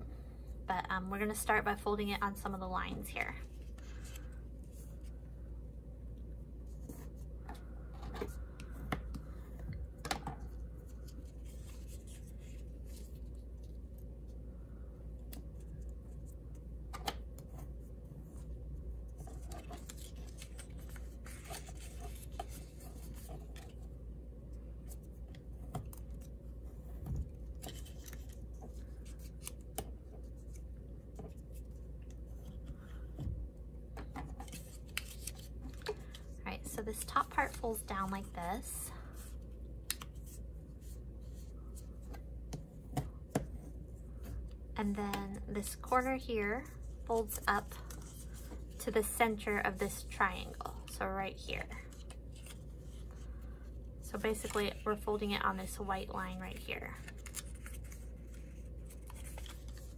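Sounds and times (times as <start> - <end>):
steady low hum: 0.0 - 59.9
cardstock folding and creasing: 19.1 - 23.9, 24.8 - 32.8, 34.0 - 38.2, 57.0 - 59.9.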